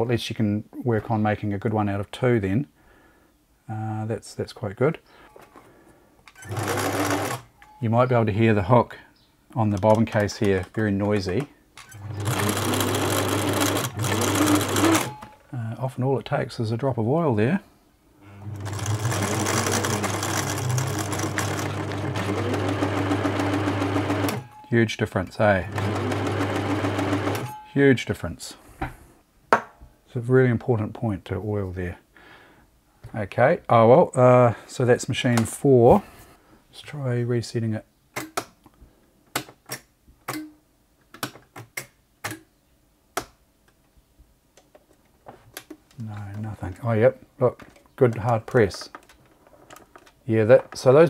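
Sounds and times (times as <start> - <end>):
sewing machine running: 6.4 - 7.4, 12.0 - 15.2, 18.3 - 24.5, 25.7 - 27.5.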